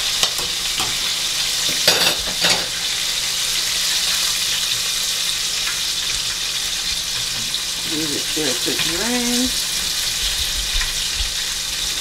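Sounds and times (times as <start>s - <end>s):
chicken sizzling in hot oil: 0.0s - 12.0s
tongs moving food in pot: 7.0s - 9.6s.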